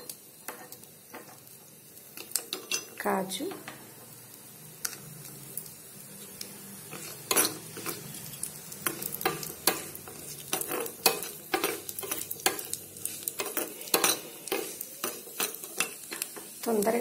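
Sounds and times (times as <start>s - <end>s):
faint sizzle: 0.0s - 17.0s
steel spoon scraping a pan: 6.1s - 16.7s.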